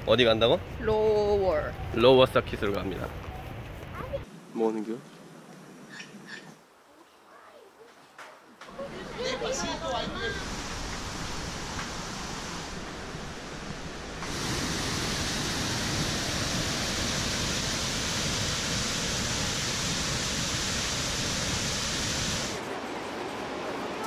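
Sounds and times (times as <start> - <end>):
waterfall roaring: 8.7 - 24.0.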